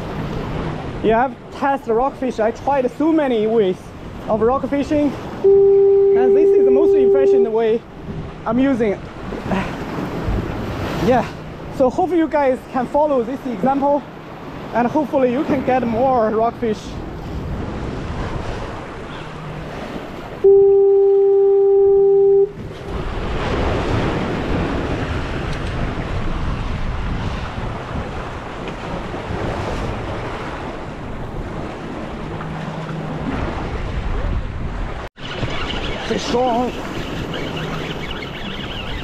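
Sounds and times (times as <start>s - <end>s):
waves on rocks: 0.0s - 39.0s
wind: 0.0s - 39.0s
loud horn blast: 5.4s - 7.6s, 20.4s - 22.6s.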